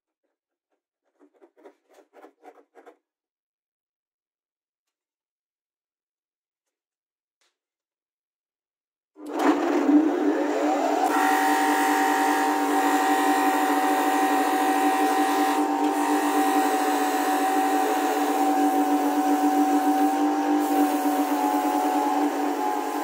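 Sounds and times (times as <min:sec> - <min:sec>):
bench grinder motor whining: 0:09.2 - 0:23.0.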